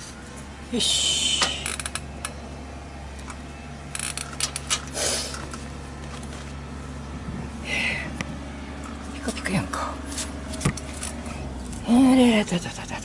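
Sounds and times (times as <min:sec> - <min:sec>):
steady low hum: 0:00.0 - 0:13.0
metal clicks and rattles: 0:03.2 - 0:06.3.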